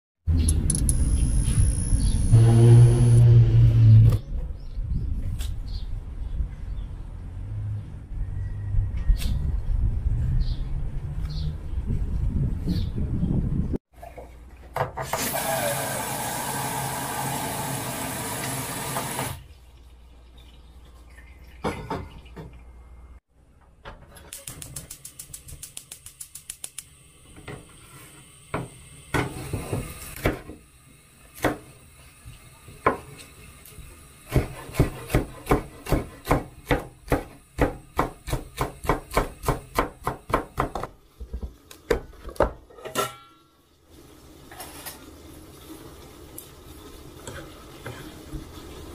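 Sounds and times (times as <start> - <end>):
water running: 14.5 - 22.4
knife chopping on wooden board: 34.3 - 40.9.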